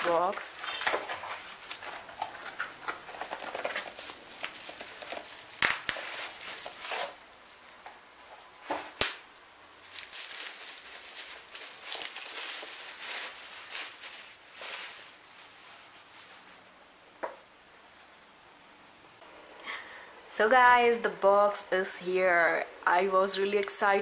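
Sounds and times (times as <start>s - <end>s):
bubble wrap and cardboard rustling: 0.0s - 17.5s
sharp cracks: 5.5s - 6.2s, 9.0s - 9.8s.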